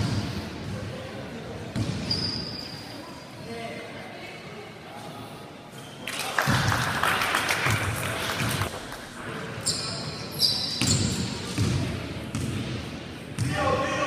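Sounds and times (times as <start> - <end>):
voices echoing in a hall: 0.0 - 14.0
high-pitched squeaks: 9.6 - 11.3.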